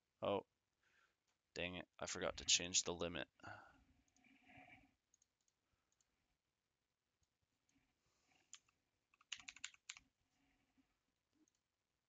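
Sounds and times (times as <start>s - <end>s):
computer keyboard typing: 8.5s - 10.0s.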